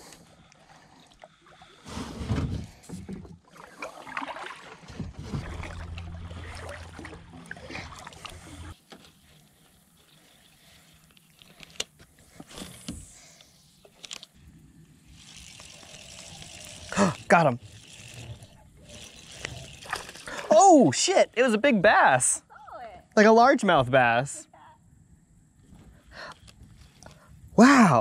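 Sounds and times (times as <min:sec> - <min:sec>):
paddle splashing in water: 0:03.4 - 0:08.8
steady low rumble: 0:05.2 - 0:08.8.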